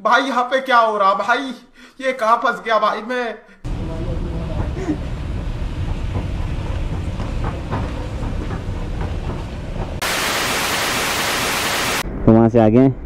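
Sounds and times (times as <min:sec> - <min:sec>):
escalator rumbling: 0:03.7 - 0:10.2
escalator steps clicking: 0:04.3 - 0:10.0
loud steady hiss: 0:10.0 - 0:12.0.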